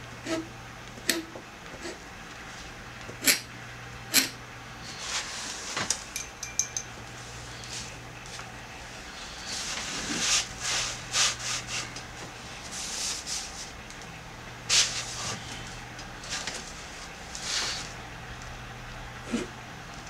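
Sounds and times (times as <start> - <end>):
low steady hum: 0.0 - 20.0
paper rustling and scraping: 4.8 - 6.1, 9.2 - 13.8, 14.7 - 18.0.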